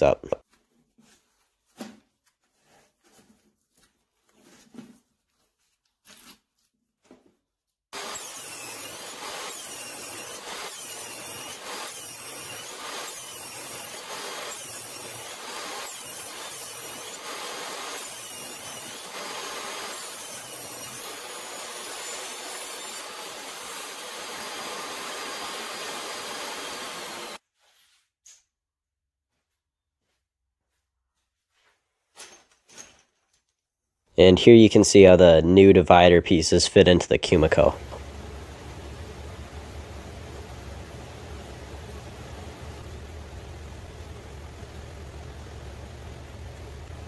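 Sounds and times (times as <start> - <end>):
table saw cutting wood: 8.0 - 27.4.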